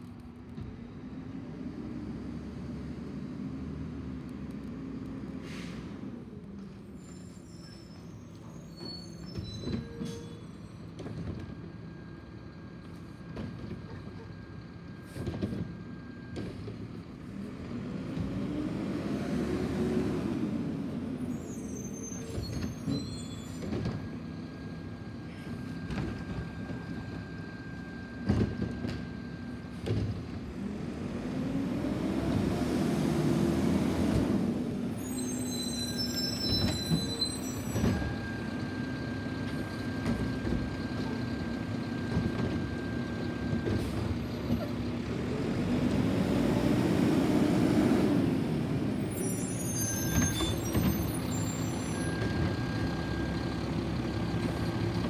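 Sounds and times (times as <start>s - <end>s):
diesel engine revving: 17.3s - 21.4s, 30.4s - 35.1s, 38.2s - 49.7s.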